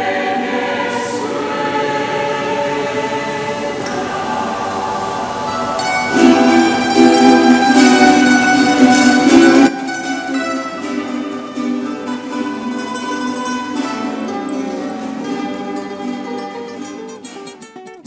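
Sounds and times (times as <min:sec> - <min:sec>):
plucked string music: 0:05.5 - 0:18.0.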